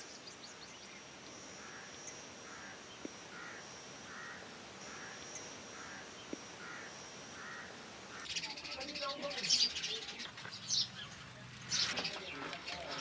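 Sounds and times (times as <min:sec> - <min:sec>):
thin steady high whine: 0:00.0 - 0:09.5
distant bird calling: 0:00.0 - 0:13.0.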